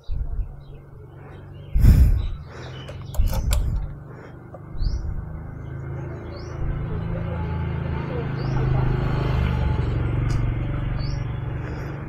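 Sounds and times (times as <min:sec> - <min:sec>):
birds chirping: 0:00.0 - 0:12.0
motorcycle engine humming and revving: 0:00.0 - 0:12.0.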